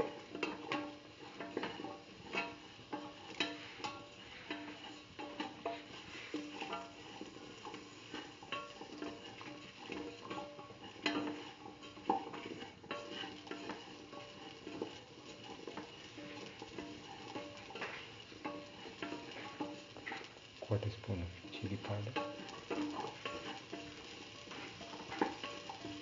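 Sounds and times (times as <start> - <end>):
spatula scraping and clinking pan: 0.0 - 20.6, 21.4 - 26.0
food sizzling in oil: 0.0 - 26.0
soft plucked background music: 0.0 - 26.0.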